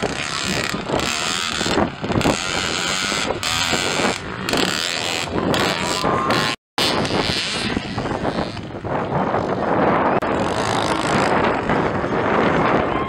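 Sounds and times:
dirt bike engine racing: 0:00.0 - 0:13.0.

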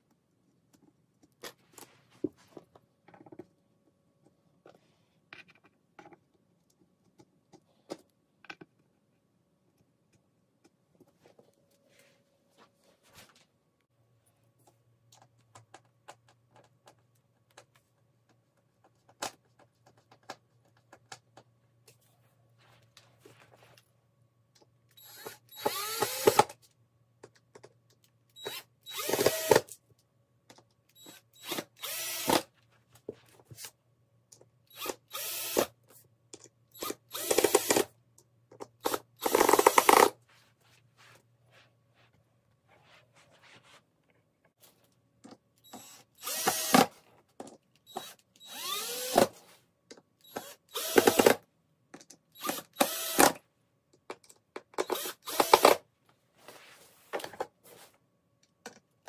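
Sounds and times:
cordless drill driving screws: 0:25.0 - 0:26.5, 0:28.4 - 0:29.7, 0:31.0 - 0:32.5, 0:34.7 - 0:35.7, 0:36.8 - 0:37.9, 0:38.8 - 0:40.1, 0:45.7 - 0:46.9, 0:47.9 - 0:49.3, 0:50.2 - 0:51.4, 0:52.4 - 0:53.4, 0:54.8 - 0:55.8.

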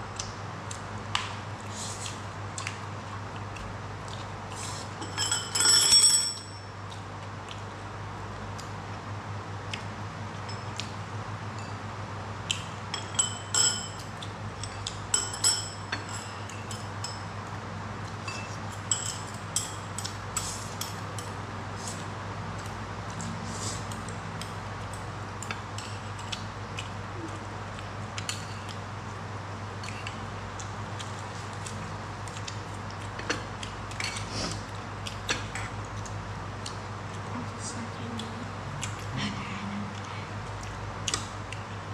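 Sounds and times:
steady low hum: 0:00.0 - 0:41.9
chopsticks clinking on ceramic bowl: 0:05.0 - 0:06.7, 0:12.9 - 0:17.3, 0:18.3 - 0:20.2.

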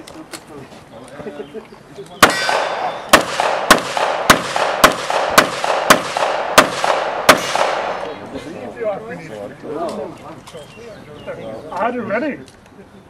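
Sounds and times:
pistol shots: 0:02.2 - 0:08.2.

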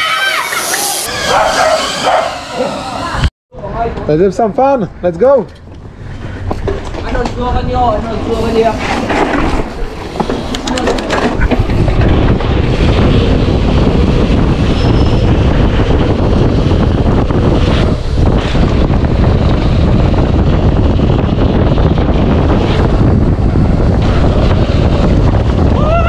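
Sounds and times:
wind buffeting microphone: 0:05.6 - 0:26.0.

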